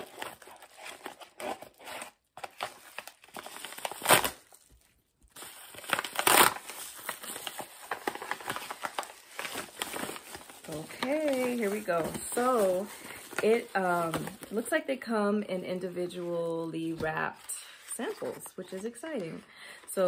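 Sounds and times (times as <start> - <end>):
scissors cutting package: 0.0 - 4.8, 5.4 - 14.7
packaging crinkling and rustling: 0.0 - 14.8.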